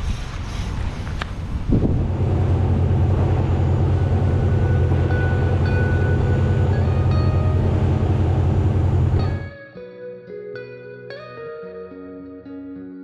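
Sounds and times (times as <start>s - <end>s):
motorboat engine droning: 1.7s - 9.5s
water rushing in wake: 1.8s - 9.4s.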